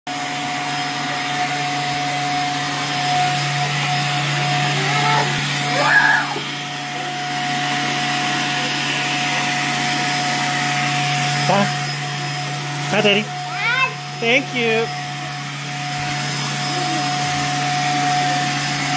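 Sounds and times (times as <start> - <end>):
vacuum cleaner running: 0.1 - 18.9
child squealing: 4.6 - 6.5.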